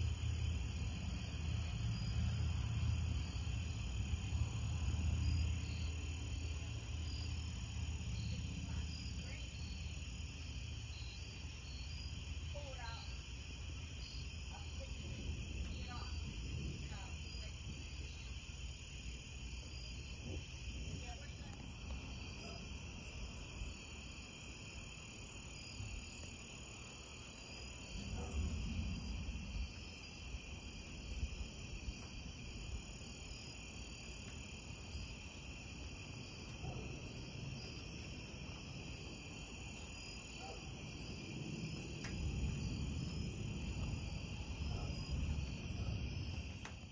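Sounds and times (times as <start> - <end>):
crickets and night insects: 0.0 - 46.9
distant thunder rumbling: 14.5 - 18.3, 19.9 - 33.3, 34.4 - 46.9.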